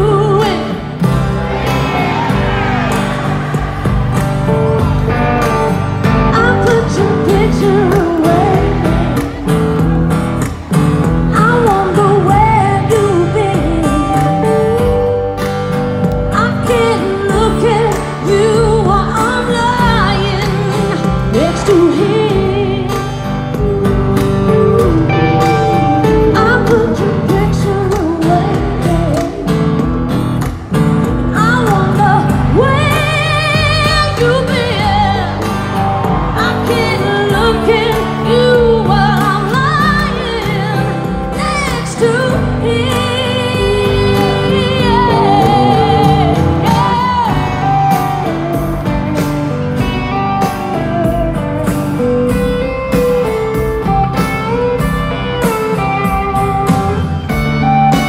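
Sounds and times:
woman singing with vibrato: 0:00.0 - 0:01.0, 0:06.1 - 0:09.4, 0:11.3 - 0:15.3, 0:16.4 - 0:29.5, 0:31.4 - 0:35.6, 0:36.4 - 0:48.2
live country-rock band: 0:00.0 - 0:58.0.

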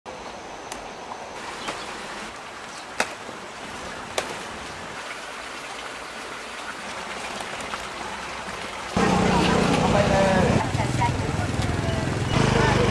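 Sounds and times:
steady rain hiss: 0:00.1 - 0:07.0.

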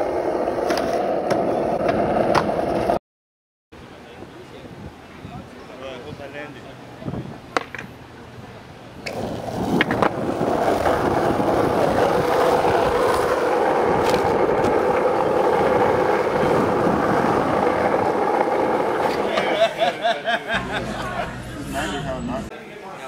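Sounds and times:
skateboard wheels rolling on asphalt: 0:00.0 - 0:03.0, 0:08.9 - 0:20.0.

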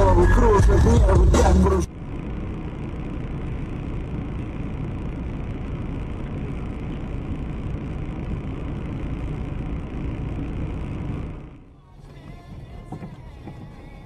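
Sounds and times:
car interior rumble and hiss: 0:00.0 - 0:14.0.

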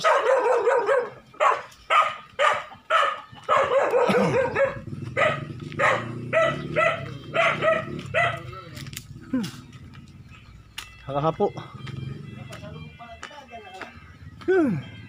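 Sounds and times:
dog barking: 0:00.0 - 0:08.6.

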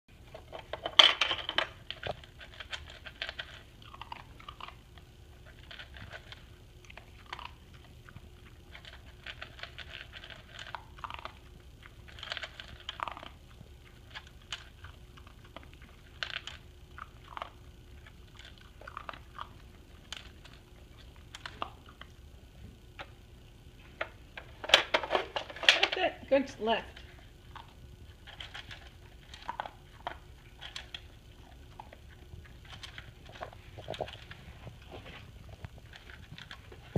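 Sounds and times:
dog crunching treats: 0:00.1 - 0:36.9.

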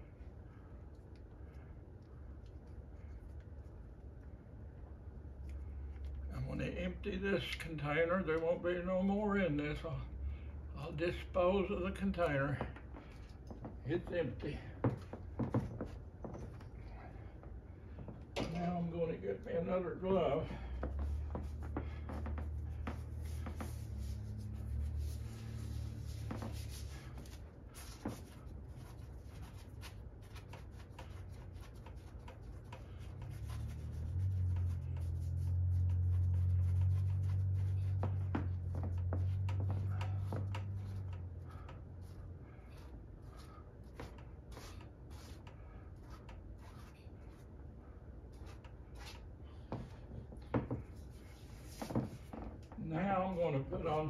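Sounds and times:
hand scraping paint on canvas: 0:18.4 - 0:47.6, 0:48.3 - 0:52.7.

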